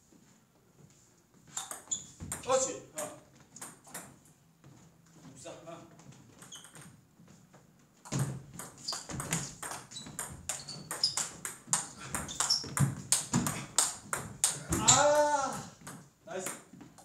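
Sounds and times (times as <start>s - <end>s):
ball clicking off bats: 8.1s - 15.0s
ball bouncing on table: 8.1s - 15.2s.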